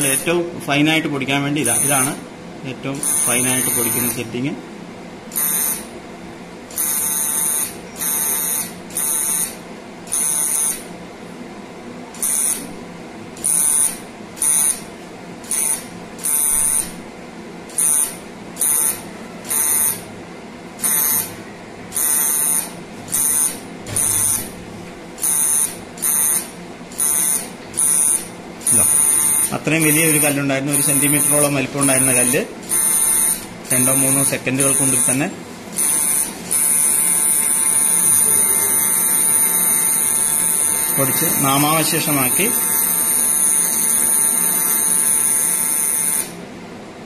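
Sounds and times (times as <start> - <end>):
buzzing laser beep: 1.6 - 2.2, 3.0 - 4.2, 5.3 - 5.9, 6.8 - 10.8, 12.2 - 12.7, 13.4 - 14.9, 15.5 - 17.0, 17.8 - 20.1, 20.8 - 24.6, 25.2 - 35.2, 35.8 - 46.4.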